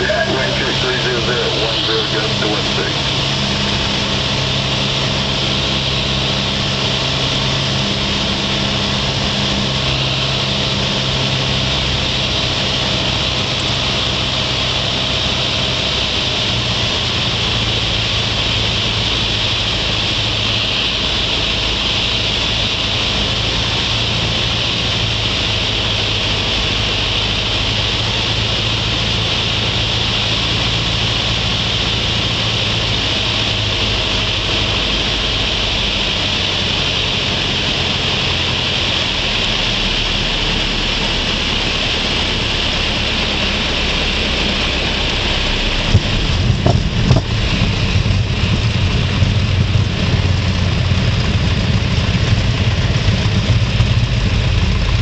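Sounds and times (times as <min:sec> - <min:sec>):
aircraft engine and propeller: 0:00.0 - 0:55.0
wind noise rushing: 0:44.1 - 0:55.0.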